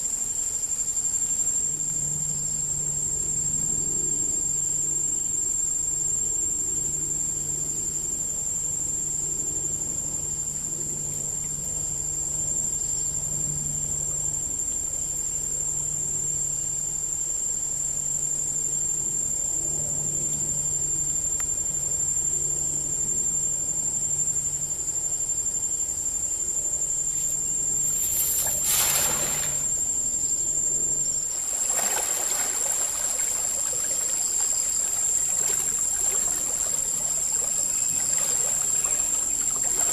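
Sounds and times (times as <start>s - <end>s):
crickets shrilling: 16.0s - 39.9s
short rush of noise: 27.9s - 29.8s
rushing water-like noise: 28.0s - 29.8s, 31.3s - 39.9s.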